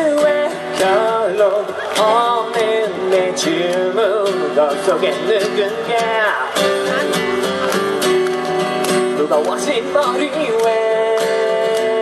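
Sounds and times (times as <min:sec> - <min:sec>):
man singing: 0:00.0 - 0:07.7, 0:08.9 - 0:12.0
acoustic guitar strummed: 0:00.0 - 0:12.0.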